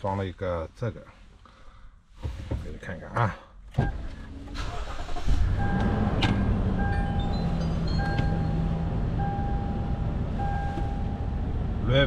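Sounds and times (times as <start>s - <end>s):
car engine starting and idling: 3.6s - 12.0s
short electronic beeps: 6.8s - 11.3s.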